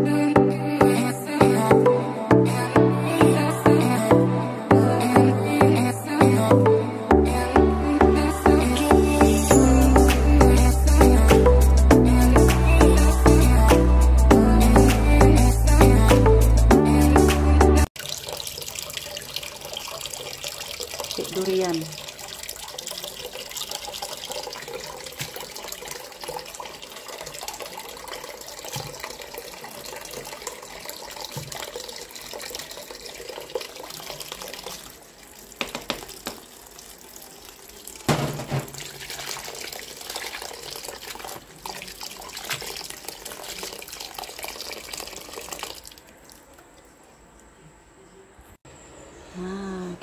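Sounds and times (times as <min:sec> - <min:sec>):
tap water running into sink: 0:18.0 - 0:46.9
knocks against basin: 0:38.1 - 0:39.0.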